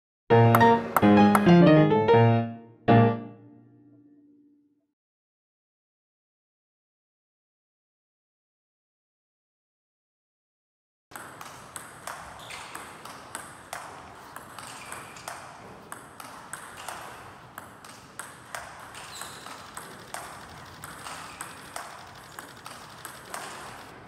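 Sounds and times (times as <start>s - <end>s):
table tennis ball clicking: 0.5s - 1.5s, 11.2s - 24.0s.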